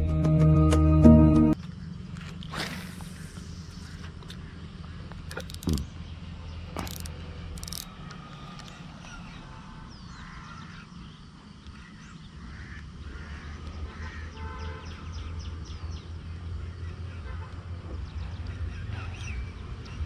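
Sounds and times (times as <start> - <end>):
birds chirping: 1.6 - 20.0
sharp clicks: 5.0 - 6.0, 6.7 - 8.9.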